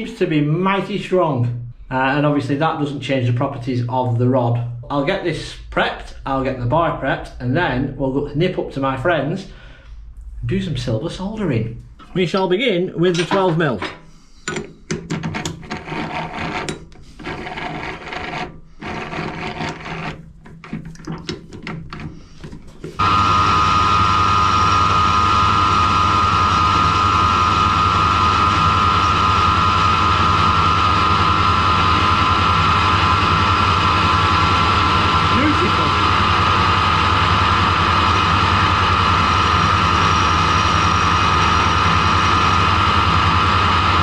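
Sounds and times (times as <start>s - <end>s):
low hum: 1.4s - 12.5s
lathe running with high whine: 15.7s - 20.1s, 23.0s - 44.0s.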